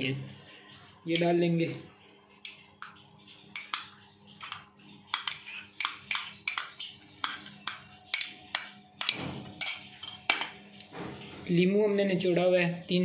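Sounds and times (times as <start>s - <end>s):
metal spoon tapping ceramic bowl: 2.4s - 10.6s.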